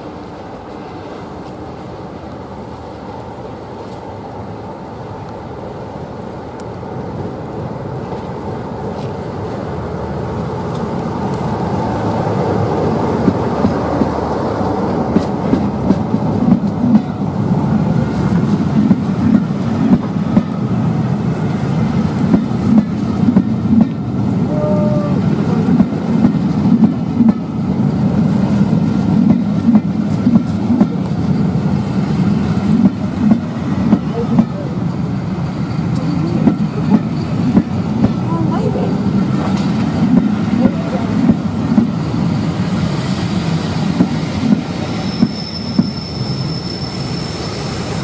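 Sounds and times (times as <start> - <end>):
diesel locomotive engine running: 0.0 - 48.0
train wheels clattering over rail joints: 13.1 - 17.3, 43.1 - 46.0.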